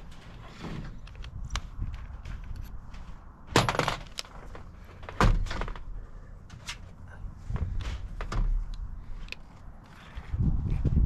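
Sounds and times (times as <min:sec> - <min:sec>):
tools and metal parts clattering: 0:03.5 - 0:05.8.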